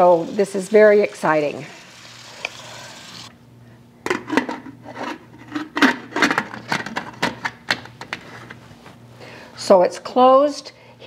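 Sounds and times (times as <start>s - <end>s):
water spraying into metal pot: 0.0s - 3.3s.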